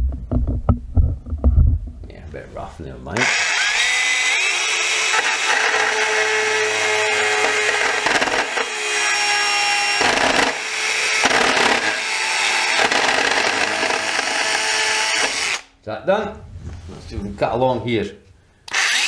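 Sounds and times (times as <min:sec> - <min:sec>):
cordless saw cutting plastic: 0:03.2 - 0:15.7, 0:18.7 - 0:19.0.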